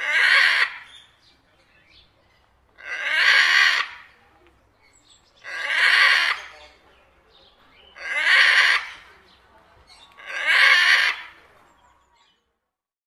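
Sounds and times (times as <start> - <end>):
macaw squawking: 0.0 - 1.0, 2.8 - 4.1, 5.4 - 6.8, 8.0 - 9.1, 10.2 - 11.4.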